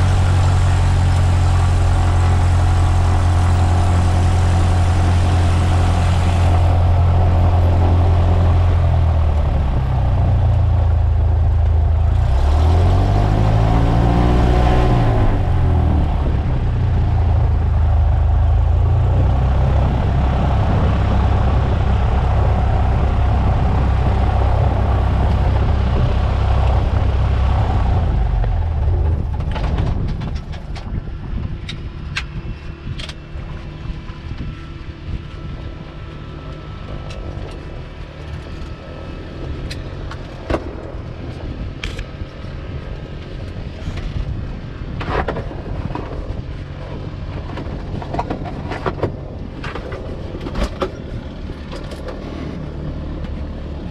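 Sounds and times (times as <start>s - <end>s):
light aircraft piston engine running: 0.0s - 53.9s.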